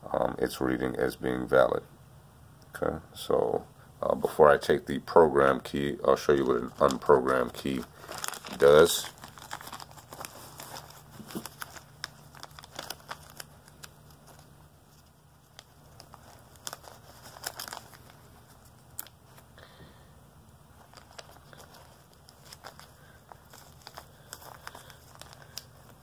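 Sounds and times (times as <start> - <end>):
plastic bag crinkling: 6.1 - 19.5, 20.8 - 26.0.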